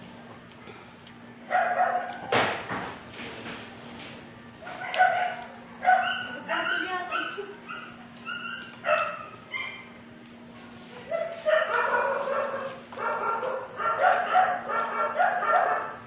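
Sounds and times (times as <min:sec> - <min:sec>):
dog whining and yelping: 0:05.9 - 0:10.1.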